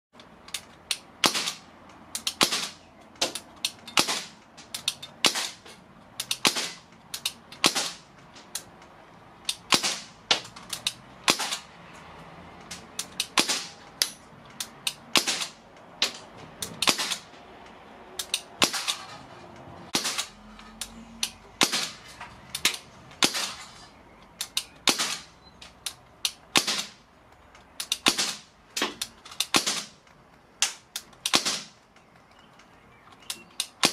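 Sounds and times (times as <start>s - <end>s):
air rifle shots cracking: 1.2s - 8.1s, 9.5s - 10.5s, 11.2s - 11.7s, 13.2s - 13.8s, 15.0s - 15.6s, 16.8s - 17.3s, 18.2s - 19.0s, 19.9s - 20.4s, 21.6s - 22.0s, 22.6s - 23.6s, 24.4s - 25.3s, 26.5s - 27.0s, 27.8s - 28.5s, 29.4s - 30.0s, 30.6s - 31.8s.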